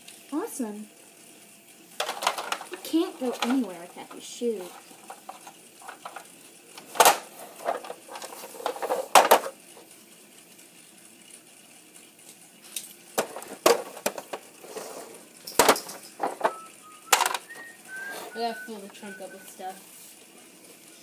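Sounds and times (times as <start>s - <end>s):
plastic toys clacking: 2.0s - 9.6s, 13.1s - 19.2s.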